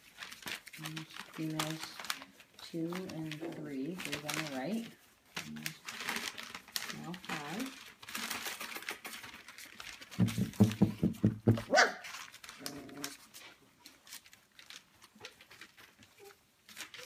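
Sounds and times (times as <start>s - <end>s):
puppy yelping: 11.6s - 12.1s.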